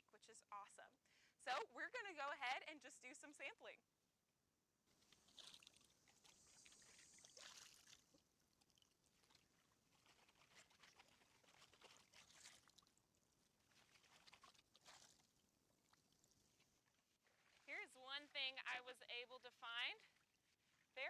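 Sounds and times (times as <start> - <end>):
shallow water splashing and sloshing: 4.9 - 18.1, 20.0 - 20.9.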